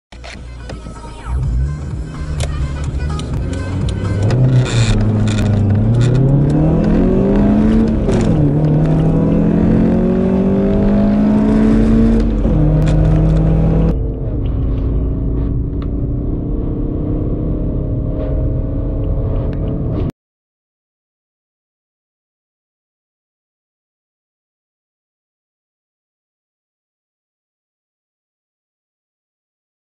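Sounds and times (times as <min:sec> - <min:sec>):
car engine accelerating: 0:00.3 - 0:20.1.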